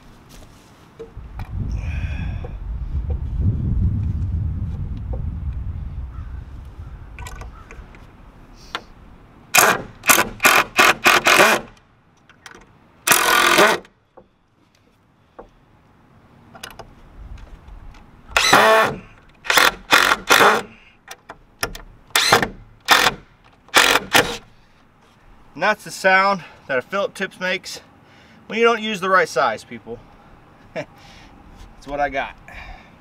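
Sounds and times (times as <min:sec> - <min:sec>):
cordless drill driving screws: 0:09.6 - 0:11.8, 0:13.1 - 0:13.9, 0:18.4 - 0:20.7, 0:22.2 - 0:24.4.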